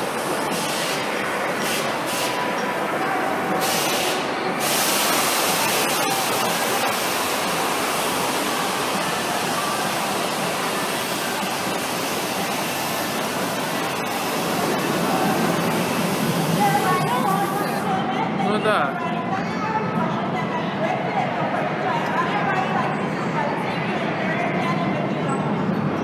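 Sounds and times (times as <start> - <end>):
spinning fairground ride: 0.0 - 18.9
amusement park rushing din: 0.0 - 26.0.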